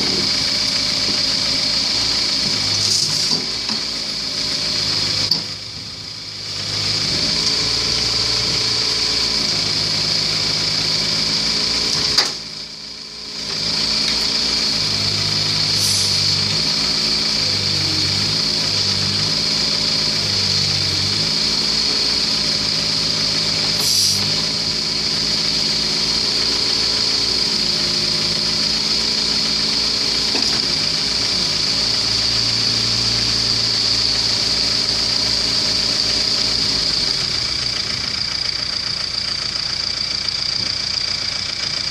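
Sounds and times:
excavator diesel engine running: 0:00.0 - 0:41.9.

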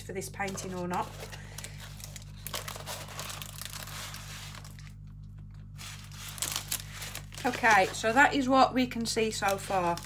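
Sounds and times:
plastic wrapper crinkling: 0:00.3 - 0:10.0
rolled canvas rustling: 0:00.4 - 0:05.0, 0:05.6 - 0:08.5.

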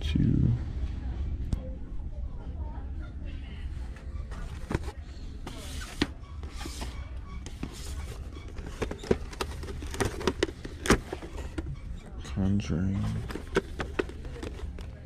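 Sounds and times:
steady low hum: 0:00.0 - 0:15.0
packaging taps clicks and rustles: 0:08.5 - 0:11.6, 0:13.2 - 0:15.0.

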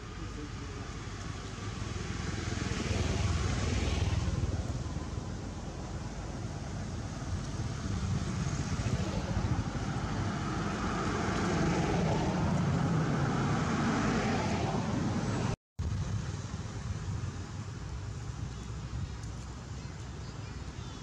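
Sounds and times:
steady outdoor rumble: 0:00.0 - 0:21.0
motor vehicle passing: 0:01.3 - 0:17.8.

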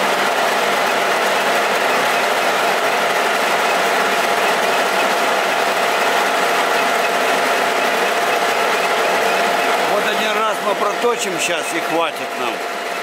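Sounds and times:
metal lathe whirring: 0:00.0 - 0:13.0.

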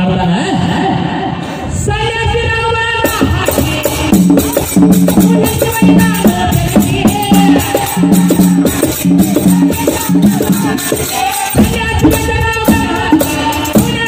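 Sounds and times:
rattling jingling percussion: 0:03.0 - 0:14.0.

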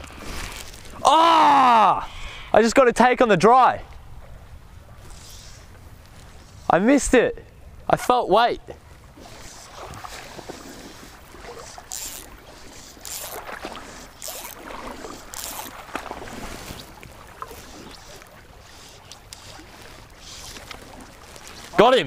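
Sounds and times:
river water lapping and sloshing: 0:00.0 - 0:22.0
short hissing rushes of water: 0:05.0 - 0:05.8.

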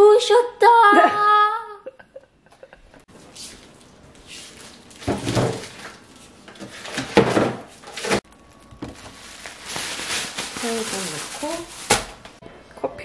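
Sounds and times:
plastic bags rustling: 0:03.1 - 0:12.4.

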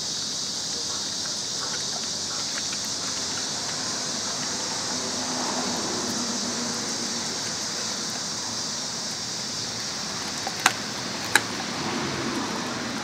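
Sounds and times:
steady background hiss: 0:00.0 - 0:13.0
dog chewing meat: 0:00.9 - 0:06.3, 0:10.1 - 0:11.7
bone crunching: 0:10.2 - 0:11.6.

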